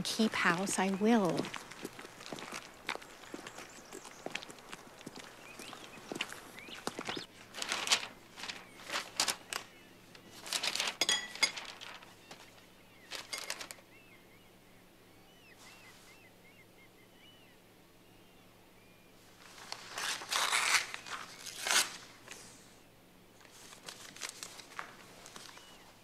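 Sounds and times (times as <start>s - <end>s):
rustling and crunching: 0.2s - 13.8s, 19.2s - 22.7s, 23.4s - 26.0s.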